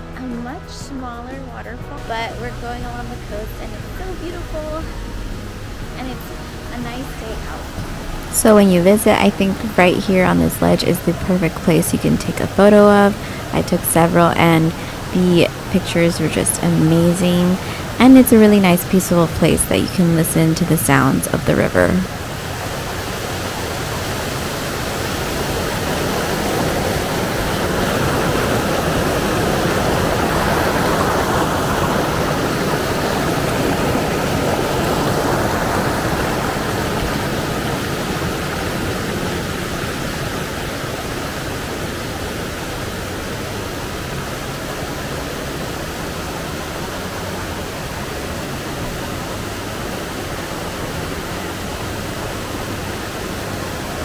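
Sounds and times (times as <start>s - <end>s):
creek rushing over rocks: 2.0s - 54.0s.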